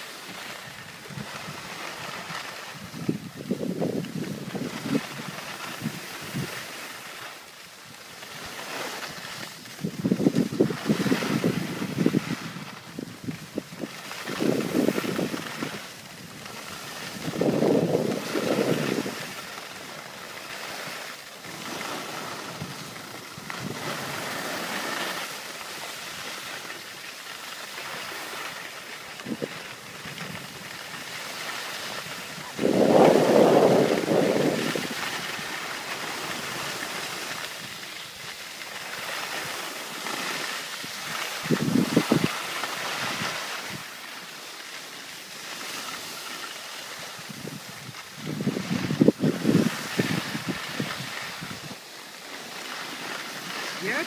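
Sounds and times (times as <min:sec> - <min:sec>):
skis hissing over snow: 0:00.0 - 0:54.0
wind buffeting microphone: 0:00.8 - 0:06.6, 0:09.6 - 0:19.5, 0:21.4 - 0:24.9, 0:29.2 - 0:38.3, 0:40.9 - 0:43.9, 0:47.0 - 0:51.8.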